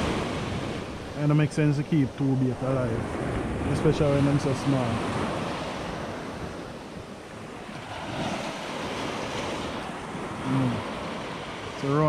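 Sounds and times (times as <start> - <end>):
sea surf breaking on beach: 0.0 - 12.0
wind buffeting microphone: 0.0 - 12.0.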